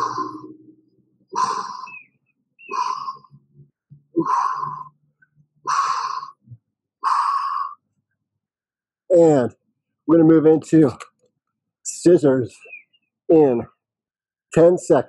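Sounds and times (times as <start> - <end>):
man's forceful breathy exhalations: 1.4 - 2.0, 2.7 - 3.4, 4.2 - 4.9.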